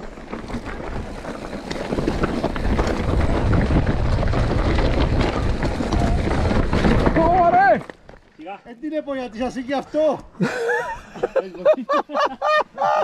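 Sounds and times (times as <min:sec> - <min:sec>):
bike rattling over rocks: 0:00.0 - 0:09.7
wind buffeting microphone: 0:00.8 - 0:07.5.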